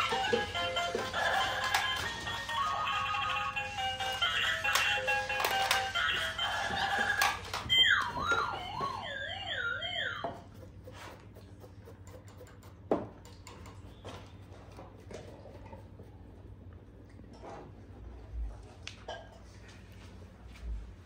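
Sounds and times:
tinny electronic toy music: 0:00.0 - 0:10.4.

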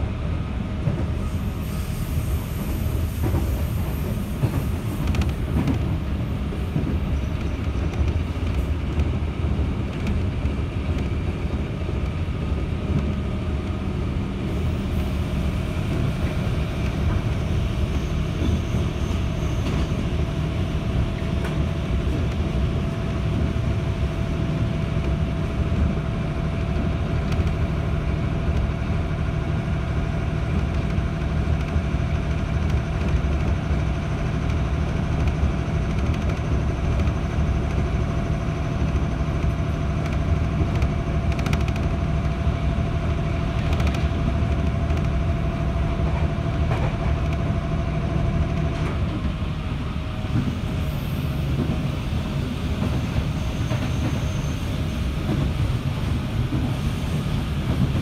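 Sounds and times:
electric train hum: 0:00.0 - 0:58.0
train wheels rumbling on rail: 0:00.0 - 0:58.0.

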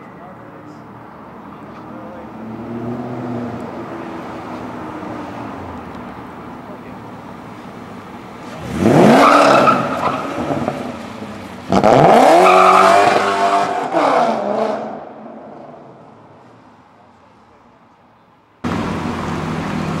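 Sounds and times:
car engine revving hard: 0:08.5 - 0:10.8, 0:11.7 - 0:15.1.

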